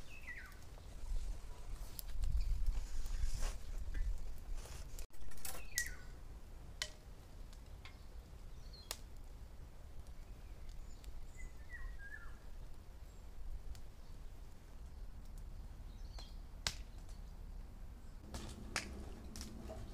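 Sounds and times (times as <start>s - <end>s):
bird chirps: 0.0s - 0.6s, 10.3s - 12.4s.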